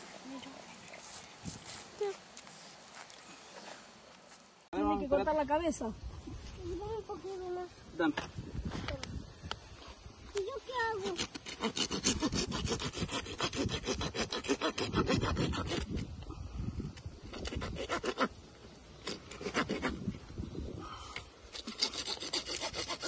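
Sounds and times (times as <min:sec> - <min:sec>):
saw rasping through bone: 0:11.0 - 0:16.1, 0:17.3 - 0:18.3, 0:19.0 - 0:20.0, 0:21.5 - 0:23.0.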